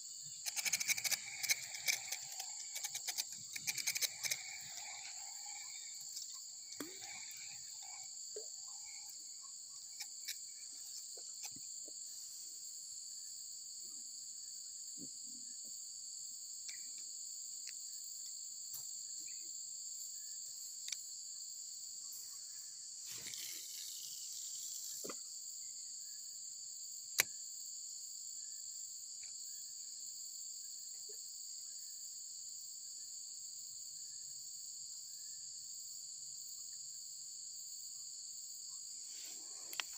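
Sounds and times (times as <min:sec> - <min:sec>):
shrill insect chorus: 0:00.0 - 0:39.9
sharp click: 0:00.4 - 0:05.0
faint clicks: 0:00.4 - 0:09.2, 0:39.6 - 0:39.9.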